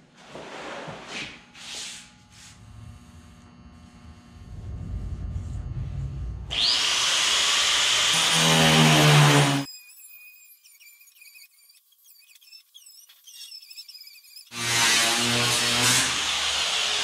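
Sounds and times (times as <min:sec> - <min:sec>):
angle grinder cutting steel: 0:05.6 - 0:17.0.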